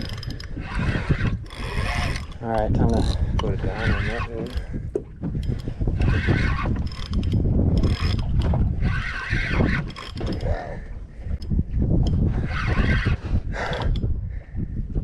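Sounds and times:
fishing reel gears whirring: 0.0 - 4.8, 5.4 - 10.6, 12.1 - 14.0
wind rumbling on microphone: 0.0 - 15.0.

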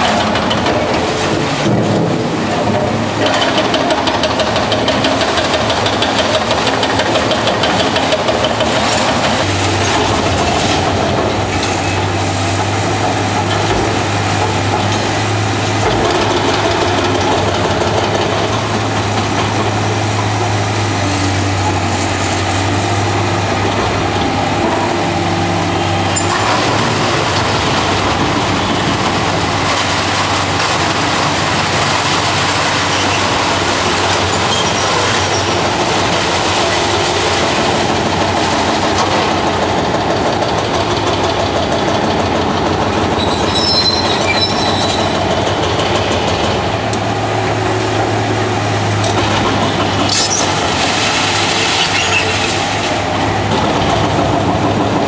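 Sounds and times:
excavator engine under load: 0.0 - 55.0
high metallic squeal: 43.2 - 45.2, 51.8 - 52.5
bucket crunching concrete rubble: 48.6 - 53.8.

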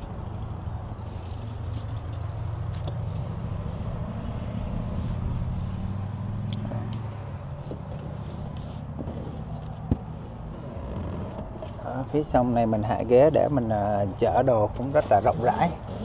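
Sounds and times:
vehicle engine idling: 0.0 - 16.0.

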